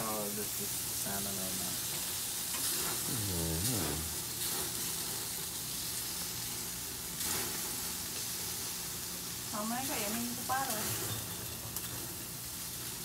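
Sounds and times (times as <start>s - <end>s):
fish sizzling on a grill: 0.0s - 13.0s.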